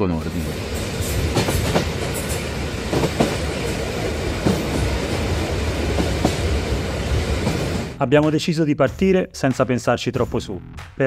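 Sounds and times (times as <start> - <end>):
freight train wagons rumbling: 0.0 - 8.0.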